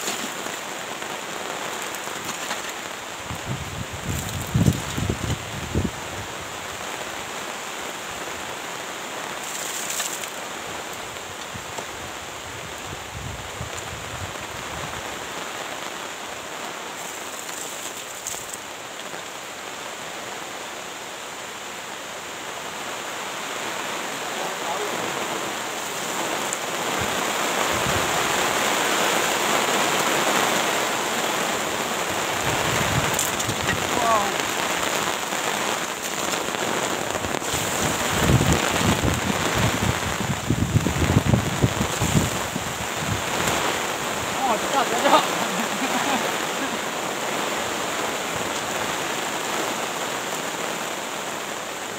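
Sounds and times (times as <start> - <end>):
hoe digging into wet soil: 0.0 - 0.6
light rain falling: 0.0 - 51.9.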